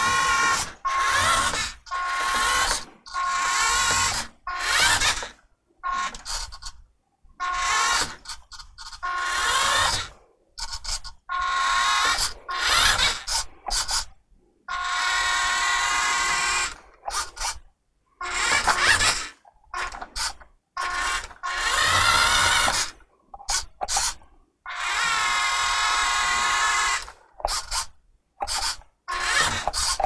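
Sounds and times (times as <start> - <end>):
toy car motor whirring: 0.0 - 6.8, 7.4 - 14.1, 14.7 - 30.0.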